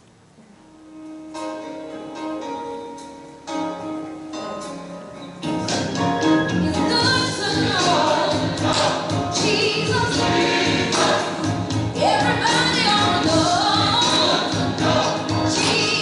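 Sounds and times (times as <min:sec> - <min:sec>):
instrumental backing: 0:00.0 - 0:16.0
choir singing gospel music: 0:06.6 - 0:16.0.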